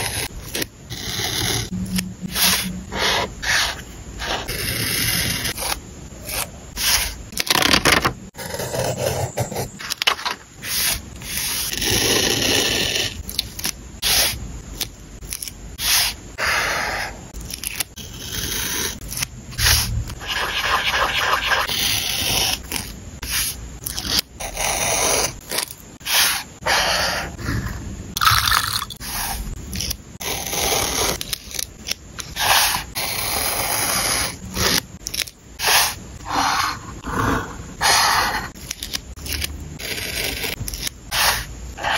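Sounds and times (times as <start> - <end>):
craft knife cutting paper: 0.0 - 9.9, 10.6 - 27.2, 29.0 - 36.8, 37.8 - 41.9
hand smoothing paper: 19.6 - 21.8.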